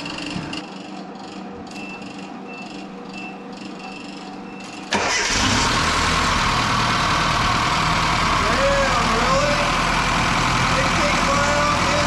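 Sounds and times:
car engine starting and running: 4.8 - 12.0.

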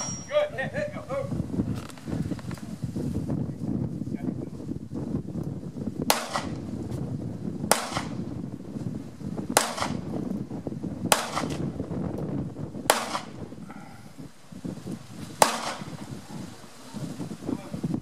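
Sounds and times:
pistol shots with echo: 6.1 - 6.6, 7.7 - 8.2, 9.6 - 10.1, 11.1 - 11.6, 12.9 - 13.4, 15.4 - 15.9.

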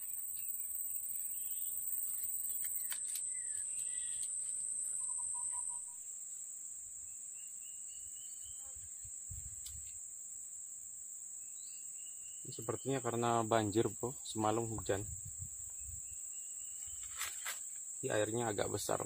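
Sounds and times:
bird chirps: 0.0 - 6.1, 7.0 - 8.8, 11.4 - 14.6
insect chorus drone: 0.0 - 19.0.

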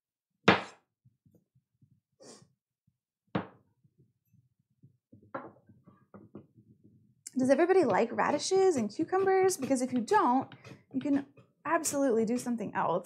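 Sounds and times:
knife striking cutting board: 0.5 - 0.8
knife cutting radishes: 7.5 - 12.6.

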